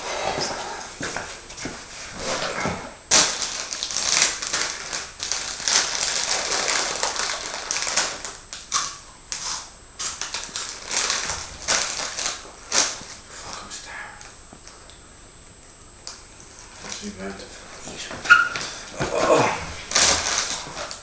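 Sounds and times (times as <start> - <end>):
crisp packet crinkling: 3.1 - 9.4, 10.1 - 13.0, 19.9 - 21.0.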